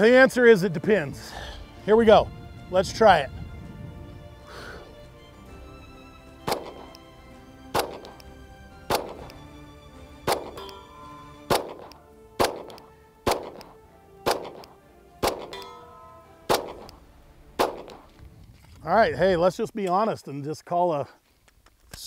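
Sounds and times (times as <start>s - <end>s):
background music: 0.0s - 18.5s
pistol single shots: 6.4s - 7.0s, 7.7s - 8.2s, 8.9s - 9.4s, 10.2s - 15.8s, 16.5s - 17.0s, 17.6s - 18.1s.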